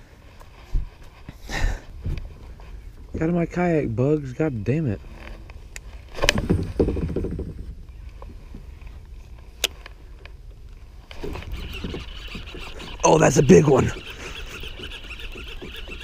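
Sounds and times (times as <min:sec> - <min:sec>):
fishing reel whirring: 0:11.2 - 0:16.0.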